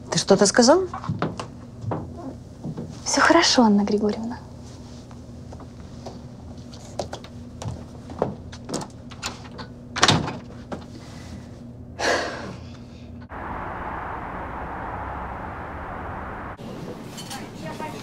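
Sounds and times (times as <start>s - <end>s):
steady outdoor noise: 13.3s - 18.0s.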